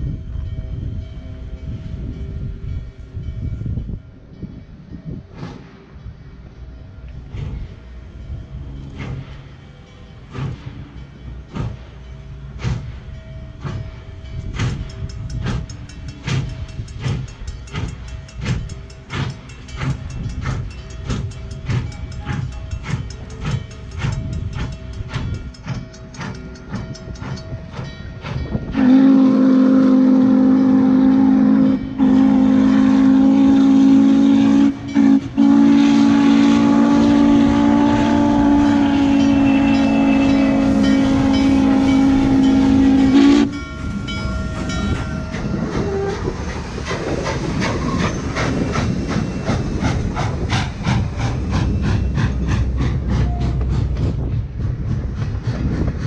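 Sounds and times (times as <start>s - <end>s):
steam locomotive exhaust beats: 0.0s - 56.0s
train wheels clattering on rails: 0.0s - 56.0s
steam whistle: 28.7s - 44.8s, 45.4s - 46.5s.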